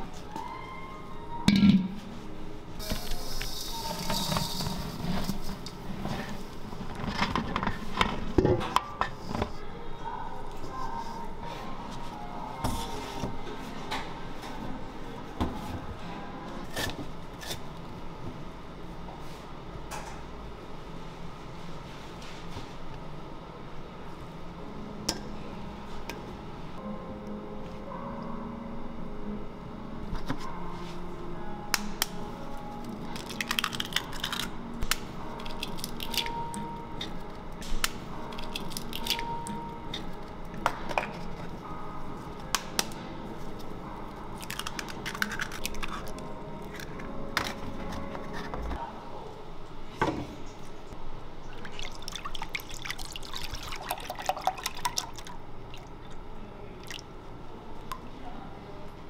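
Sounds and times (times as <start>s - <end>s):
cream worked in steel bowl: 2.8s - 8.4s
eggs cracking: 33.0s - 37.1s, 37.8s - 40.1s, 44.4s - 47.6s.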